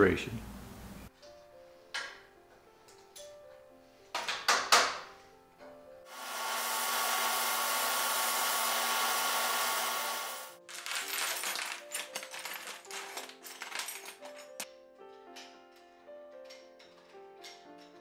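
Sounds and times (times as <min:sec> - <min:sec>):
sandblast gun hissing: 0:06.1 - 0:10.6
metal parts clinking: 0:10.6 - 0:18.0.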